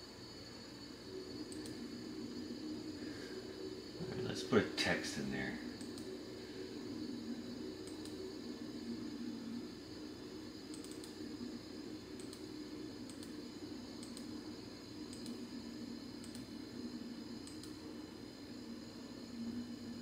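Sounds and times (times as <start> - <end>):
steady low hum: 0.0 - 20.0
keyboard and mouse clicks: 10.7 - 11.2, 14.0 - 14.3.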